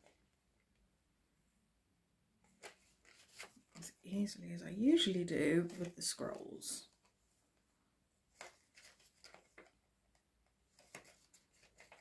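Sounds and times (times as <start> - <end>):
paper rustling: 2.4 - 4.1, 8.3 - 12.0.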